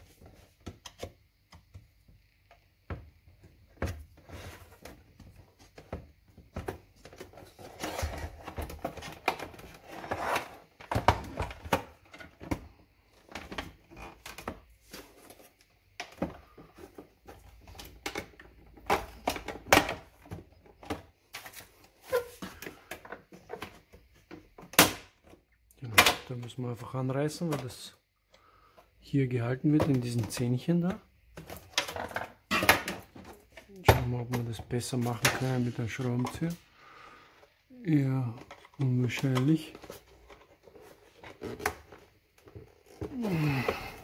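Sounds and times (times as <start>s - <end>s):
plastic scraping and rattling: 3.7s - 25.4s, 29.7s - 36.6s, 38.1s - 44.0s.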